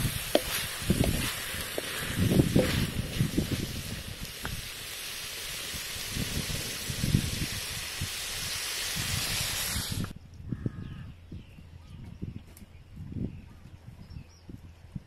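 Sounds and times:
wooden spatula scraping wok: 0:00.0 - 0:04.5
squid sizzling in a wok: 0:00.0 - 0:10.1.

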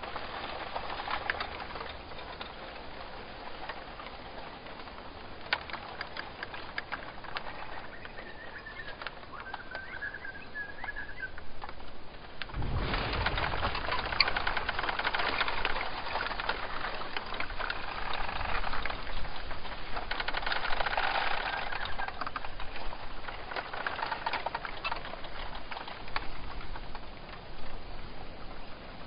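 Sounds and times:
rain pattering: 0:00.0 - 0:29.0
low rumble: 0:12.4 - 0:16.4.

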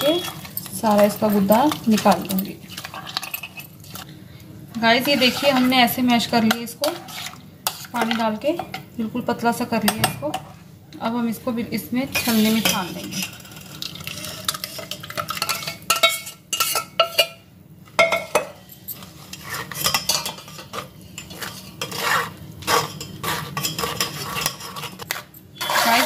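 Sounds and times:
metal spoon scraping a mesh strainer: 0:00.0 - 0:04.1, 0:04.9 - 0:08.2, 0:12.1 - 0:17.3, 0:18.9 - 0:26.0.

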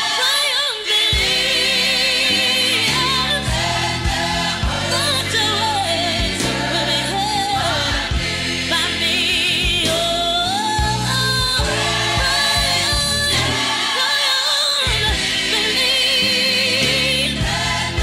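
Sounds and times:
gospel song with band: 0:00.0 - 0:18.0.

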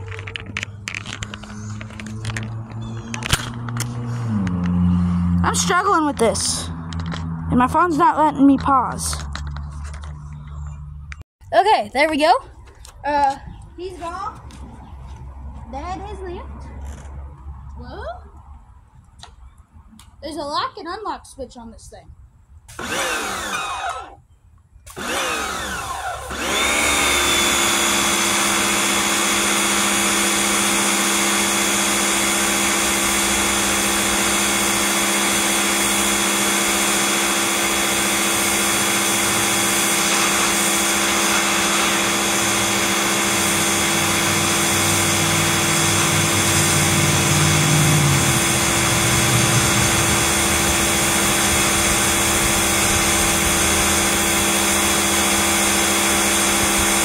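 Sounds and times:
pressure washer motor and pump: 0:00.0 - 0:07.8, 0:22.7 - 0:24.2, 0:24.8 - 0:57.0
water jet spraying onto concrete: 0:37.6 - 0:57.0.

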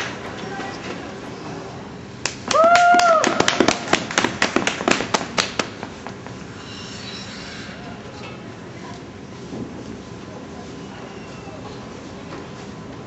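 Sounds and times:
sparse applause: 0:02.4 - 0:05.6.

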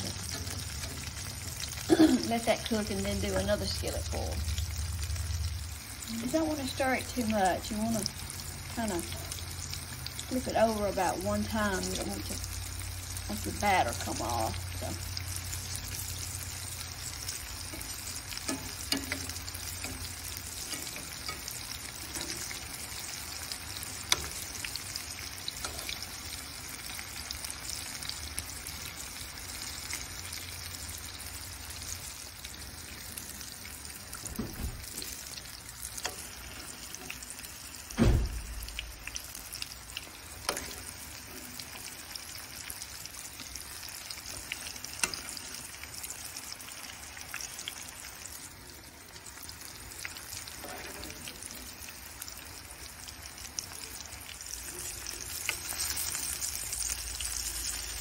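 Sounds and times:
food deep-frying in oil: 0:00.0 - 0:58.0
loud thump: 0:38.0 - 0:38.7.

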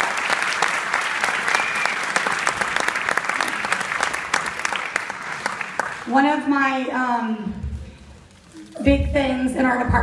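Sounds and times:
audience clapping: 0:00.0 - 0:06.4.

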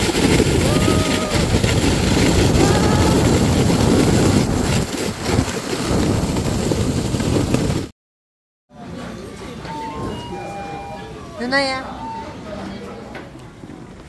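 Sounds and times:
sled scraping on snow: 0:00.0 - 0:07.9
wind buffeting microphone: 0:00.0 - 0:07.9.

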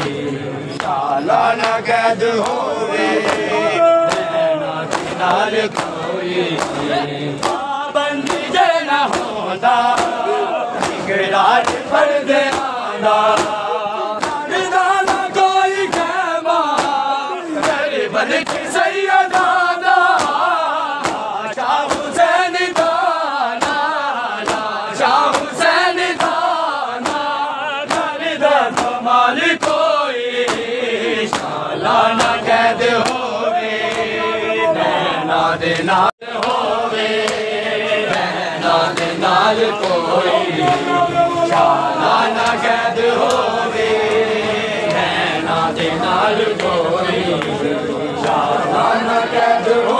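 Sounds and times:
crowd of men chanting: 0:00.0 - 0:49.9
hands slapping chests: 0:03.2 - 0:03.5, 0:04.9 - 0:06.8, 0:07.4 - 0:10.2, 0:10.8 - 0:17.0, 0:17.6 - 0:17.8, 0:19.3 - 0:21.3, 0:22.7 - 0:23.0, 0:23.6 - 0:24.7, 0:25.3 - 0:25.6, 0:27.0 - 0:28.1, 0:28.7 - 0:29.0, 0:30.5 - 0:30.7, 0:31.3 - 0:31.6, 0:32.2 - 0:32.4, 0:37.2 - 0:37.5, 0:43.2 - 0:43.5.

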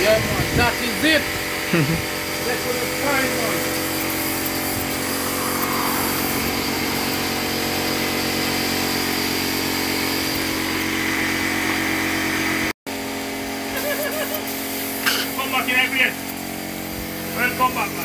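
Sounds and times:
motor hum: 0:00.0 - 0:14.5
spray gun hissing: 0:02.0 - 0:11.5, 0:13.8 - 0:18.0.

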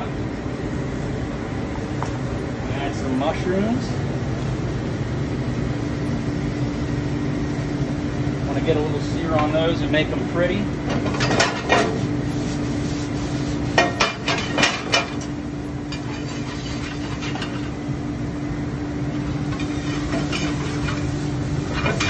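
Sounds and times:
metal spoon scraping a pan: 0:15.9 - 0:17.7, 0:19.2 - 0:22.0.

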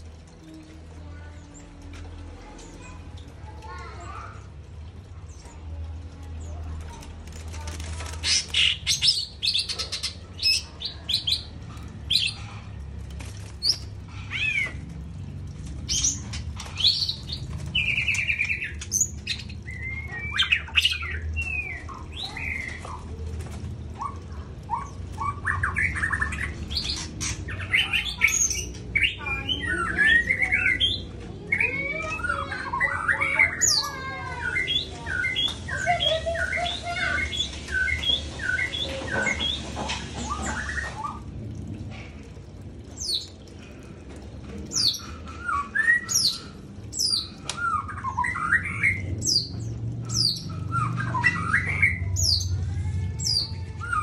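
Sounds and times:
bird chirping and whistling: 0:32.2 - 0:39.6, 0:44.8 - 0:52.5
low steady hum: 0:34.0 - 0:54.0.

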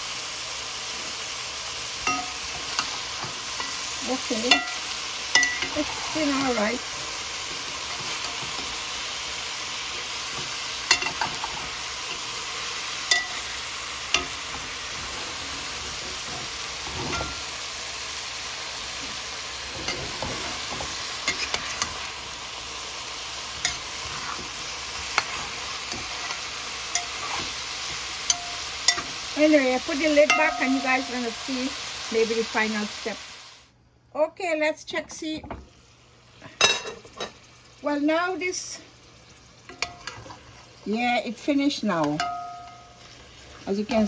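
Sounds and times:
food sizzling in a metal pot: 0:00.0 - 0:33.8, 0:34.8 - 0:44.0
metal spoon scraping a pot: 0:14.1 - 0:17.5, 0:23.6 - 0:29.1.

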